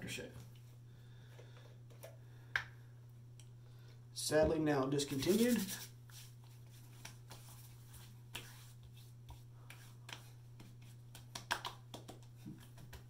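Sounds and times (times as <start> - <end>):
steady low hum: 0.0 - 13.0
hands patting face: 5.2 - 13.0.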